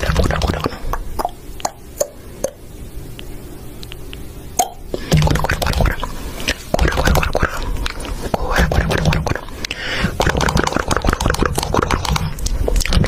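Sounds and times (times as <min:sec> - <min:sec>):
faint low hum: 0:00.0 - 0:13.0
person speaking: 0:05.0 - 0:13.0.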